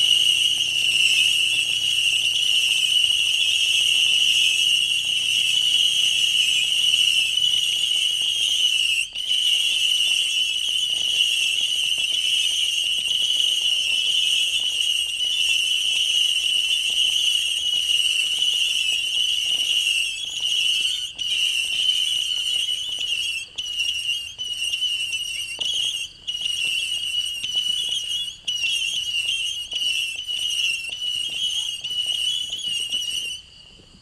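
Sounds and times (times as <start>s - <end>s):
whistling fireworks: 0.0s - 34.0s.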